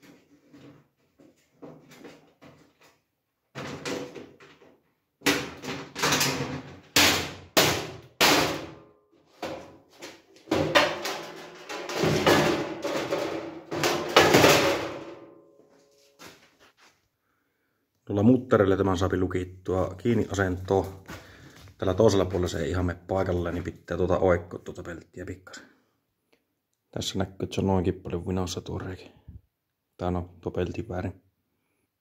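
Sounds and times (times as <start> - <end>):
metal panels clanking and rattling: 5.2 - 7.2, 10.5 - 15.2.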